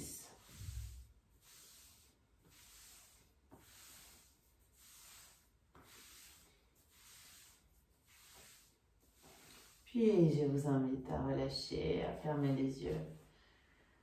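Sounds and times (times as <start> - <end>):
hands rubbing on thigh: 0.0 - 9.9.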